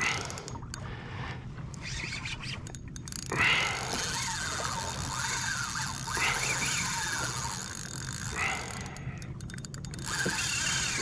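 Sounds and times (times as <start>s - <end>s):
fishing reel drag whining: 0.0s - 0.8s, 1.7s - 11.0s
reel clicks: 0.0s - 11.0s.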